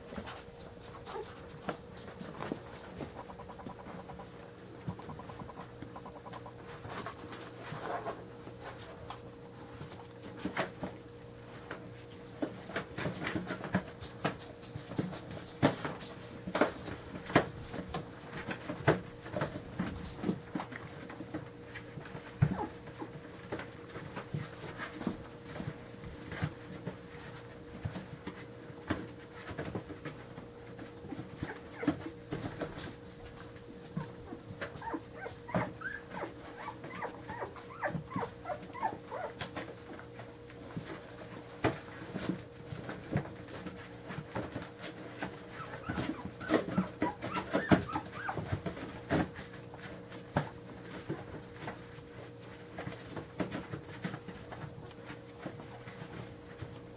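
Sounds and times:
faint steady hum: 0.0 - 56.9
puppies squeaking and whimpering: 3.0 - 4.3, 5.0 - 6.5, 34.8 - 39.4, 45.6 - 48.6.

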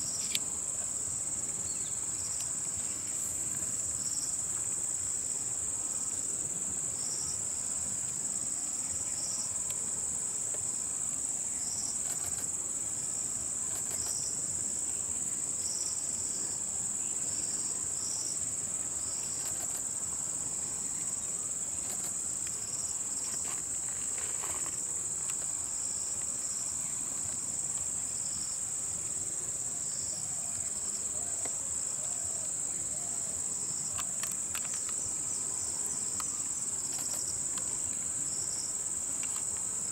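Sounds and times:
insect chirping in pulses: 0.0 - 39.9
insect high-pitched drone: 0.0 - 39.9.

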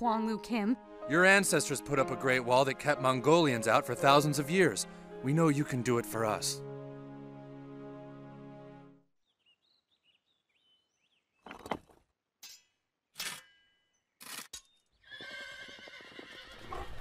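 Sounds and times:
horse whinnying: 15.0 - 17.0.

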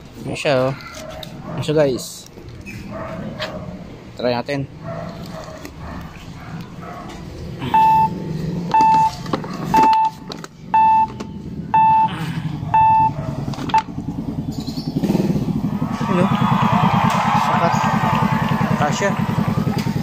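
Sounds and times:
electronic beeper tone: 7.6 - 13.9.

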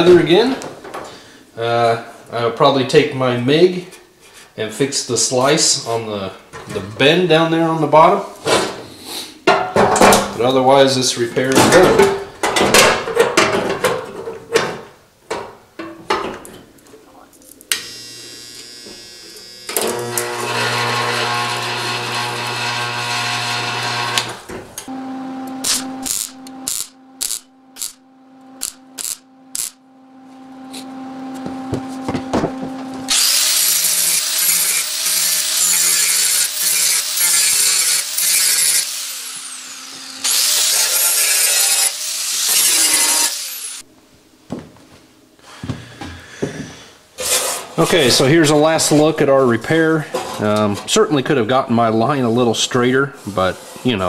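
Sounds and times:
grinder on metal: 17.7 - 24.5, 25.6 - 28.0, 28.6 - 29.8, 33.1 - 43.8
clicks over hum: 24.8 - 33.1
small motor running: 25.6 - 29.8, 30.7 - 40.6.

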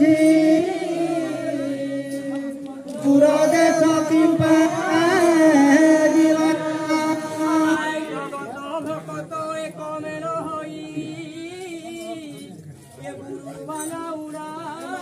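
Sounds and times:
voices singing devotional chant: 0.0 - 12.5, 14.0 - 15.0.

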